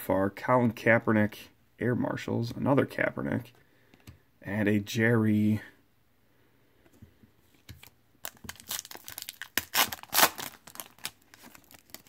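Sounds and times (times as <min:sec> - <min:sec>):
foil wrapper tearing and crinkling: 0:08.2 - 0:12.0.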